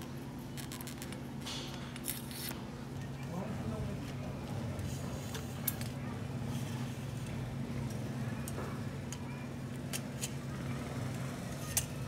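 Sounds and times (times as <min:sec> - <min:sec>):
tools and bike parts clicking: 0:08.4 - 0:10.4, 0:11.5 - 0:12.0.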